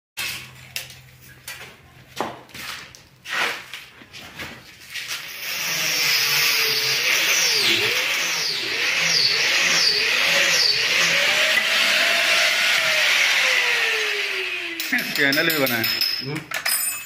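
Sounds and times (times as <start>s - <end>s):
electric drill boring into stone: 5.2s - 15.1s.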